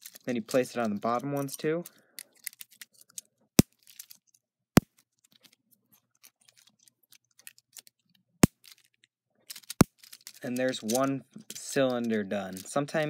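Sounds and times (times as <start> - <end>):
plastic pieces snapping: 6.2 - 12.7.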